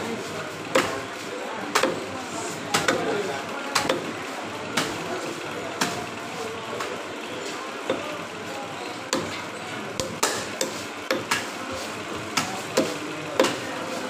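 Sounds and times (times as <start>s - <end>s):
knife chopping fish on wood: 0.7s - 1.0s, 1.7s - 2.0s, 9.1s - 9.3s, 10.0s - 11.5s, 12.3s - 13.7s.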